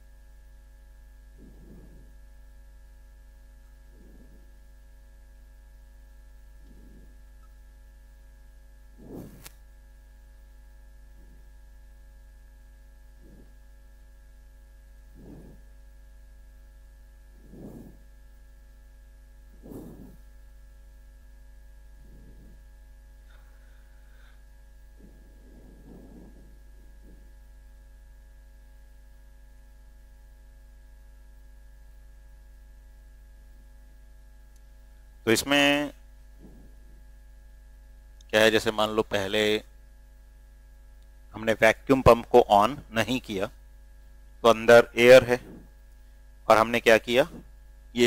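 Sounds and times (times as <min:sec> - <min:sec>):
electrical mains hum: 0:00.0 - 0:48.0
faint soft short sounds: 0:01.2 - 0:09.8, 0:11.0 - 0:14.3, 0:14.9 - 0:29.0, 0:35.5 - 0:37.7, 0:44.7 - 0:47.7.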